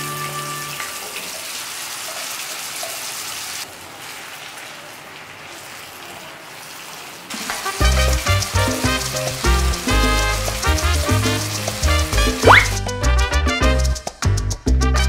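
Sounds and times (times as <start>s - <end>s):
food sizzling in a frying pan: 1.8s - 12.9s
spatula stirring: 7.3s - 12.9s.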